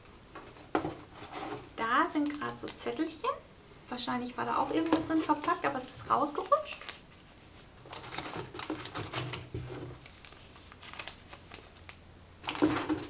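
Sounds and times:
paper cards shuffled: 2.1s - 2.9s, 4.7s - 12.9s.

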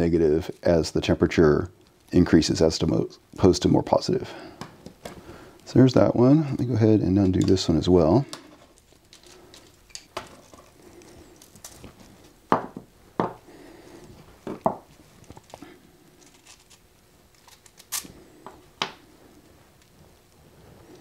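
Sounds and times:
parts knocking on wooden workbench: 12.5s - 13.4s, 14.4s - 14.9s.

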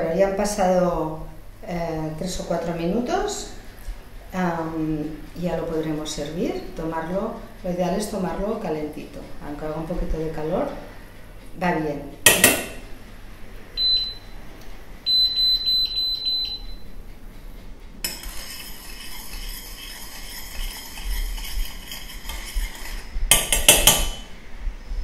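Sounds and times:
sharp knock: 12.3s - 12.8s
hob touch control beeps: 13.8s - 14.2s, 15.1s - 16.8s
metal spoon scraping saucepan: 18.0s - 24.3s.

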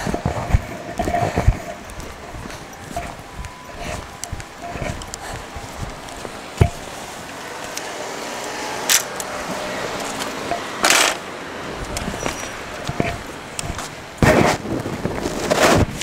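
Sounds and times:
rustling noise: 0.0s - 7.9s, 11.8s - 16.0s.

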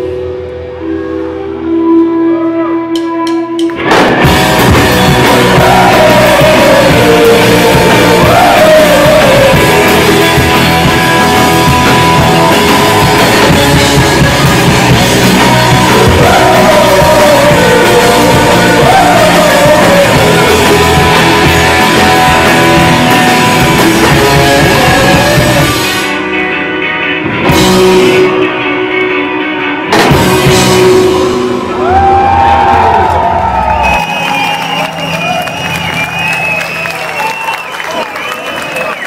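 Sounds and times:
rock band playing live: 0.0s - 37.2s
person singing: 4.9s - 26.3s.

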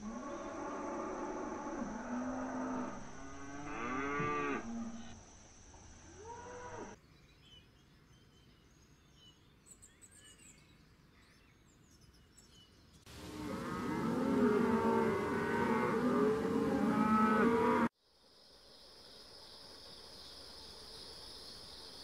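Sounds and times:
cattle mooing: 13.2s - 17.9s.

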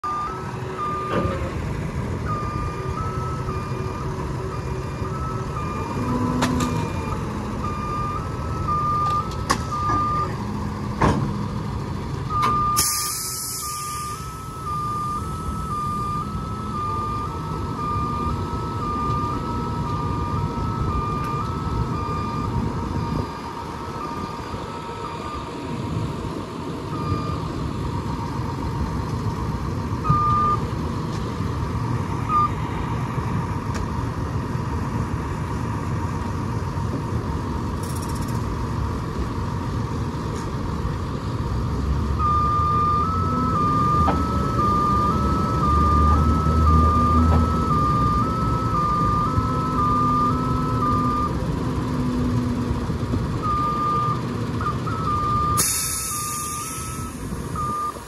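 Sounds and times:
reversing alarm beeping: 0.0s - 11.0s, 12.3s - 28.5s, 30.0s - 30.7s, 32.0s - 32.6s, 42.0s - 58.0s
truck engine running: 0.0s - 58.0s.

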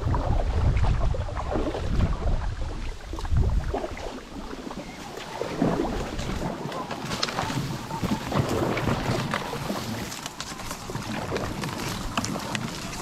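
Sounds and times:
paddle strokes splashing in water: 0.0s - 13.0s
wind buffeting the microphone: 0.0s - 13.0s.

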